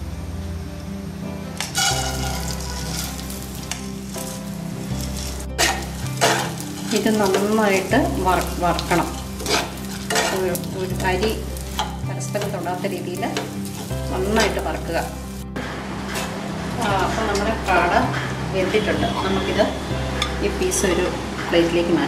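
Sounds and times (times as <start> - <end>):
rice frying: 1.4 - 18.6
metal spoon scraping a pan: 1.6 - 4.3, 5.0 - 14.8.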